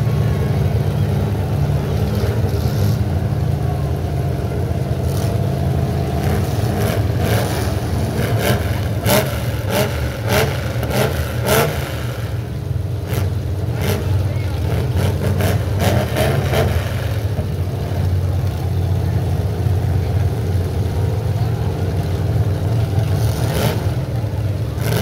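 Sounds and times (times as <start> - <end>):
truck engines idling: 0.0 - 25.0
engines revving in blips: 5.0 - 18.6.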